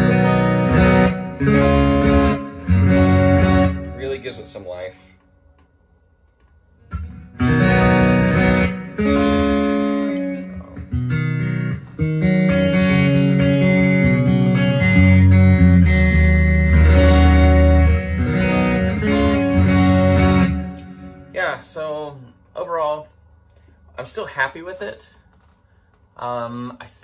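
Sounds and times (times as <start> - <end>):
amplified acoustic guitar: 7.0 - 21.6.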